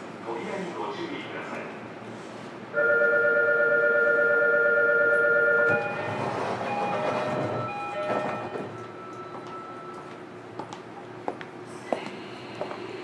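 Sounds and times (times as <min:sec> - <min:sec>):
train running noise: 0:02.6 - 0:13.0
train warning tone chord: 0:02.7 - 0:10.2.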